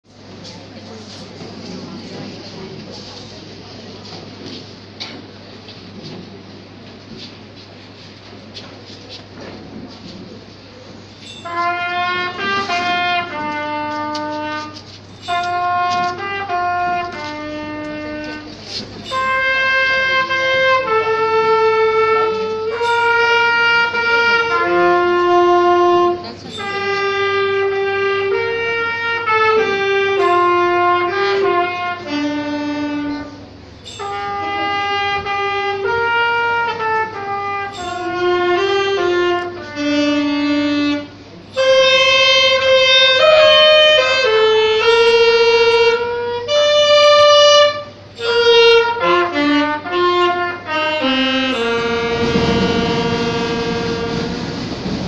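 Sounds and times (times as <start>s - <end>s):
brass-like wind instrument melody: 11.2s - 55.0s.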